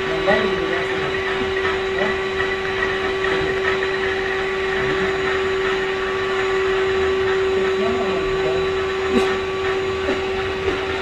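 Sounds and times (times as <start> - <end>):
vacuum cleaner whining: 0.0 - 11.0.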